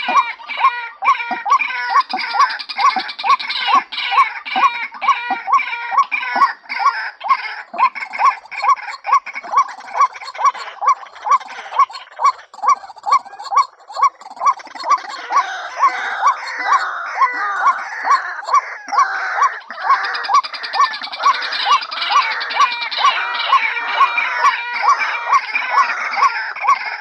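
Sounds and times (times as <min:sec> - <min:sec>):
harsh croaking calls: 0:00.0 - 0:27.0.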